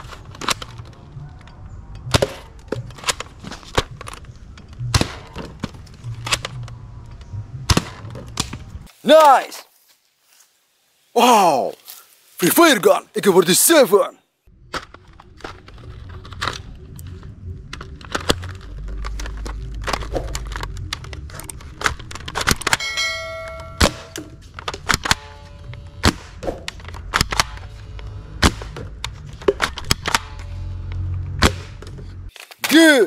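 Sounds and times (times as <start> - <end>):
ringing ding: 22.8 - 24.4.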